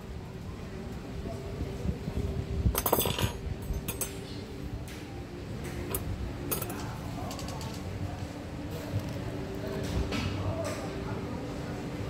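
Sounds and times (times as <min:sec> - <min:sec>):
dishes and cutlery clinking: 0:02.8 - 0:04.3, 0:05.8 - 0:07.8.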